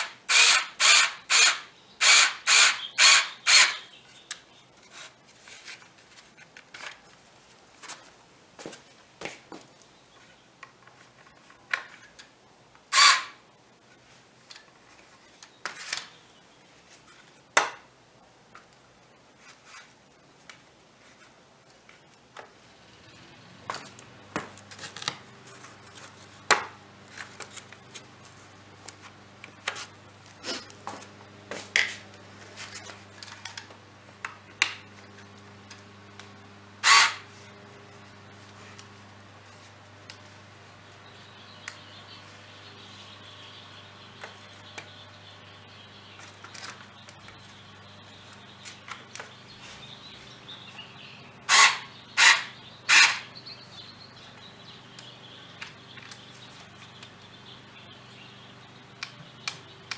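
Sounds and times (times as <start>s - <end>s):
steady low hum: 20.0s - 59.9s.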